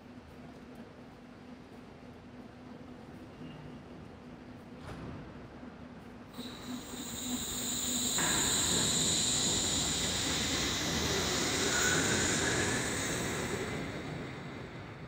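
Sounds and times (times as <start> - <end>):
high electric whine: 6.4 - 15.0
railway running gear noise: 6.4 - 15.0.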